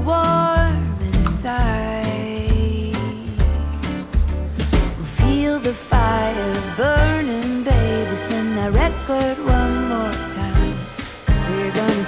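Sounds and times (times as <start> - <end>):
bass: 0.0 - 12.0
upbeat guitar song: 0.0 - 12.0
drum beats: 0.6 - 12.0.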